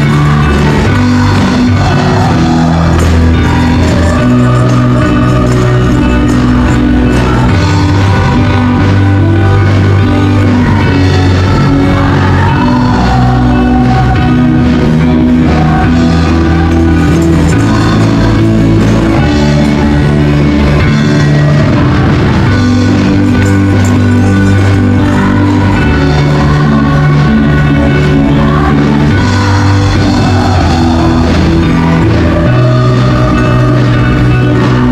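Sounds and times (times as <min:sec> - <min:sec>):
tambourines shaking: 0:00.0 - 0:27.4
group singing: 0:00.0 - 0:34.9
worship band playing: 0:00.0 - 0:34.9.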